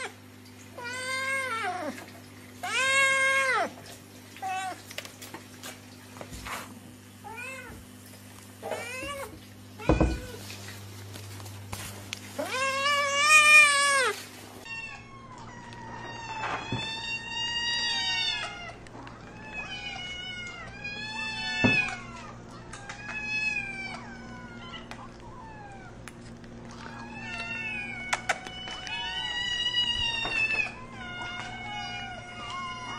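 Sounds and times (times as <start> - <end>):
kittens meowing: 2.6 - 3.8, 12.4 - 26.1, 26.7 - 32.9
cat meowing loudly: 8.6 - 10.4, 12.4 - 26.0, 26.9 - 32.9.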